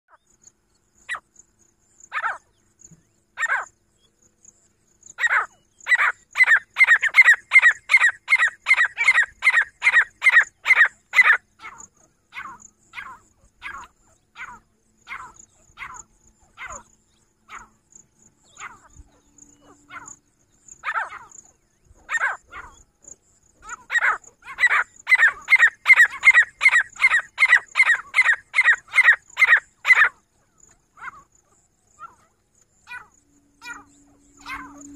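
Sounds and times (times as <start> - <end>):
francolin calling: 0.1 - 34.9.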